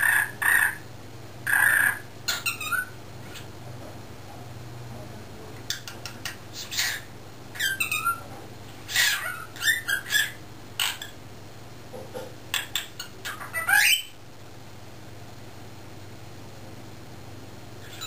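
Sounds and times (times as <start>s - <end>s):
cockatiel squawking and chattering: 0.0s - 0.8s, 1.5s - 3.5s, 5.7s - 8.3s, 8.9s - 11.2s, 12.5s - 14.2s.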